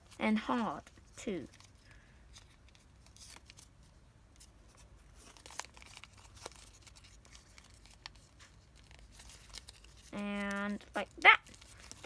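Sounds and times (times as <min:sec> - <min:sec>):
paper crinkling: 0:00.0 - 0:12.0
soft paper clicks: 0:04.3 - 0:12.0.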